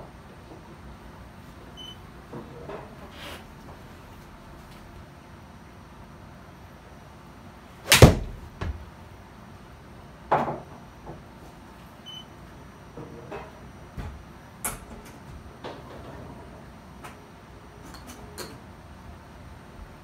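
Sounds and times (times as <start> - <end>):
golf club striking ball: 7.8 - 8.7
ball hitting screen: 7.9 - 8.8.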